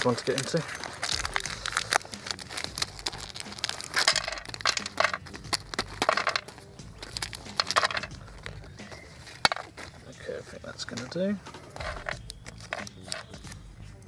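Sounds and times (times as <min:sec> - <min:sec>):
plastic pouch crinkling: 0:00.0 - 0:10.2.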